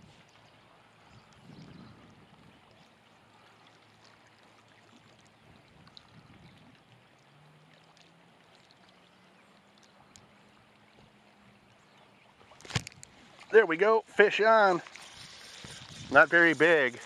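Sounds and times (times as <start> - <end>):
faint lakeside ambience: 0.0 - 17.0
light ticks: 7.7 - 10.3.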